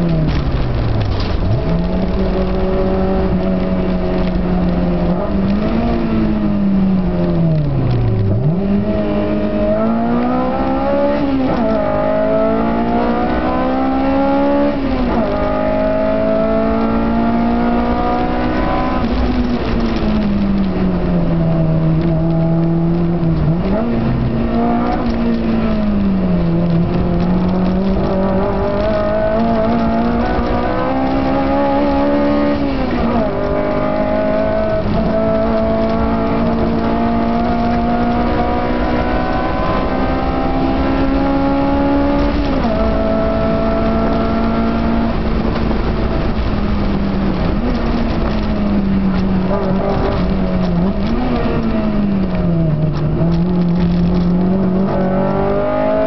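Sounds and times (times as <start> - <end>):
car engine pulling and upshifting: 0.0 - 56.0
road and wind noise: 0.0 - 56.0.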